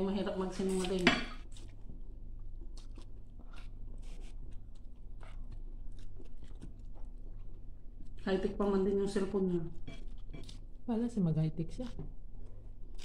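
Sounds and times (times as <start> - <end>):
steady low hum: 0.0 - 13.0
chewing with soft crunches: 0.7 - 8.3, 11.7 - 13.0.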